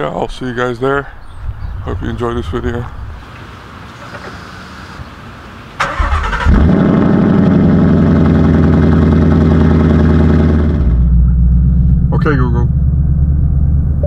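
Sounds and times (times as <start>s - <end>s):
car engine starting and idling: 5.7s - 14.0s.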